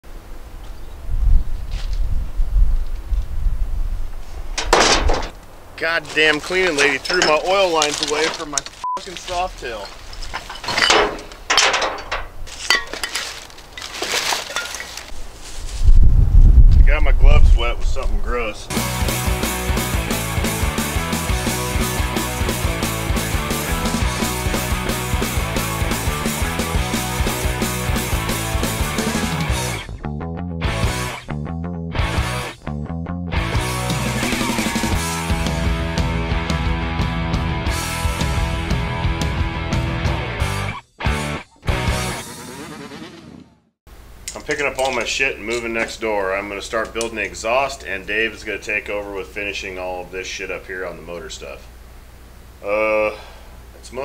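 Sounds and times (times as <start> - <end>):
rubbish clinking and knocking: 4.6 - 5.4, 6.1 - 15.1
plastic bags rustling: 5.3 - 11.5, 12.3 - 15.9
rock music with steady beat: 18.7 - 42.2.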